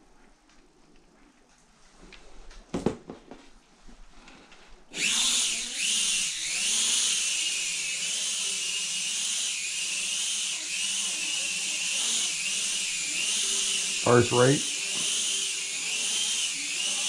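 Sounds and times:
quadcopter propellers whining: 4.9 - 17.0.

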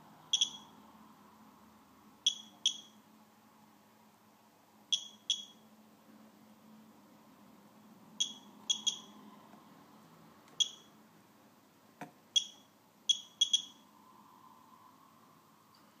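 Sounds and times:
geiger counter beeps: 0.3 - 0.7, 2.3 - 3.0, 4.9 - 5.6, 8.2 - 9.2, 10.6 - 10.9, 12.4 - 13.8.

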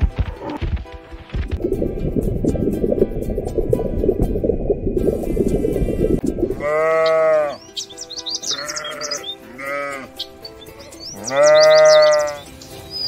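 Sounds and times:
sheep bleating: 6.6 - 7.6, 8.5 - 10.2, 11.1 - 12.5.

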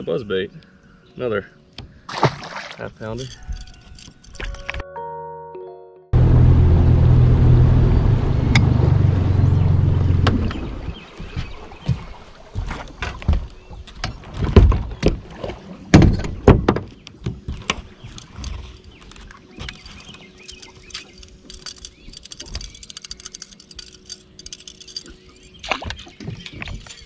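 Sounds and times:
knocks and thumps on boat deck: 10.0 - 18.3
fishing reel ticking: 20.4 - 25.1.

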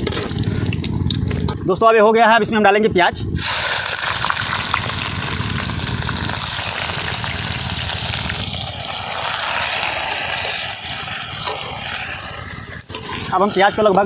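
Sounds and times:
low rumble: 0.0 - 12.9
onions sizzling in hot oil: 3.4 - 14.0
ladle stirring in pan: 8.5 - 14.0.

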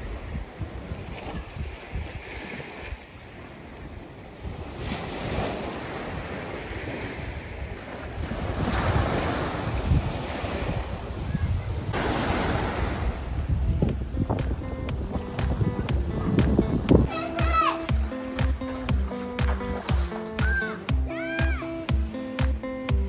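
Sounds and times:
small waves breaking on sand: 0.0 - 15.7
wind rumbling on microphone: 0.0 - 17.1.

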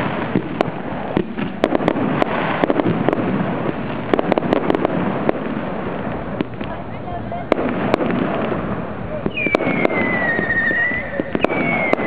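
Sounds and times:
firework bangs: 0.0 - 12.0
fireworks crackling: 0.0 - 12.0.

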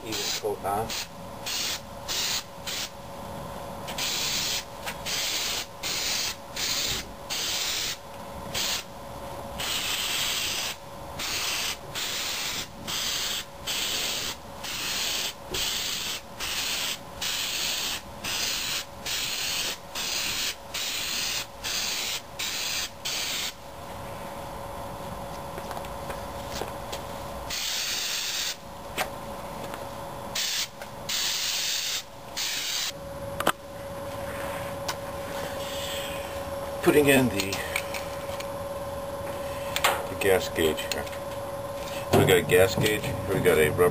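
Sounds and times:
aerosol spray can hissing: 0.2 - 2.9, 3.9 - 8.8, 9.6 - 23.5, 27.5 - 28.6, 30.4 - 32.9.

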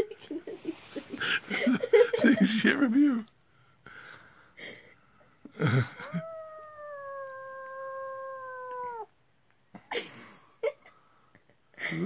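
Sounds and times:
cat yowling: 6.0 - 9.1.

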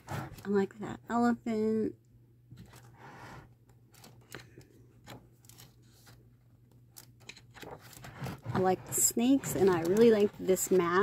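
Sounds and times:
low steady hum: 0.0 - 11.0
paper pages rustling: 3.9 - 6.3, 6.9 - 11.0.

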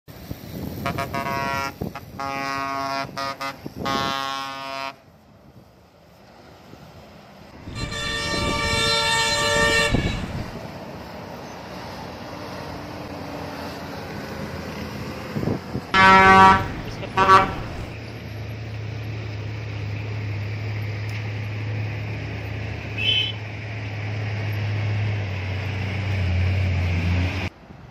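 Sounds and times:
bus engine running: 0.1 - 27.9
bus air horn blasts: 0.8 - 5.1, 7.6 - 10.6, 15.9 - 18.0, 23.0 - 23.5.

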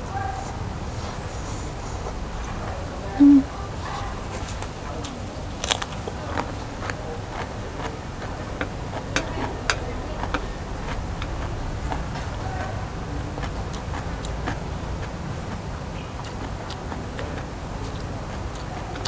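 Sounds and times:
chewing: 0.1 - 19.0
short low hum: 1.0 - 3.6
chopsticks clicking on steel tray: 8.2 - 12.3.

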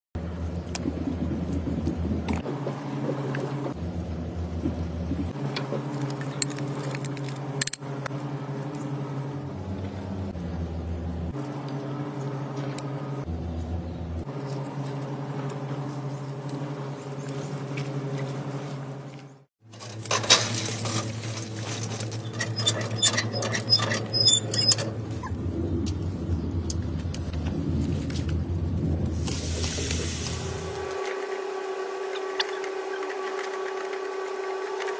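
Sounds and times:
music with low sustained notes: 0.2 - 22.4
charcoal clattering into grill: 19.7 - 22.9.

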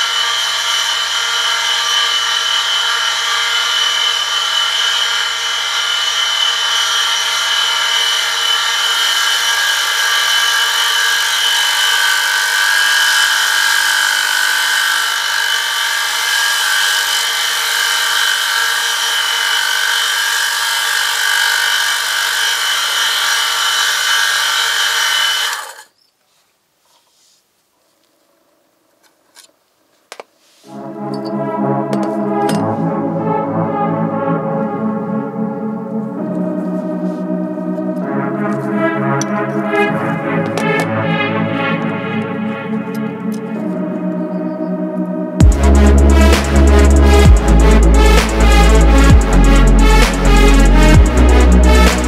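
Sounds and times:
high-pitched machine whine: 0.0 - 25.8, 30.7 - 33.4.

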